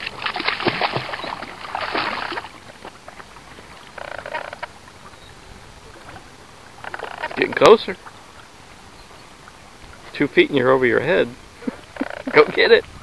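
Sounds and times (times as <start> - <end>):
dog splashing in water: 0.0 - 3.0
water lapping: 0.0 - 13.0.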